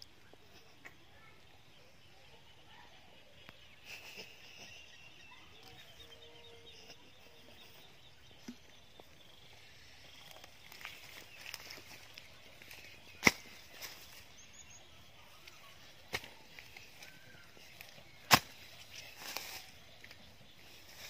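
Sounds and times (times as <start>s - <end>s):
distant bird calls: 0.0s - 21.0s
wooden stick digging into soil: 10.1s - 14.4s, 15.4s - 20.2s.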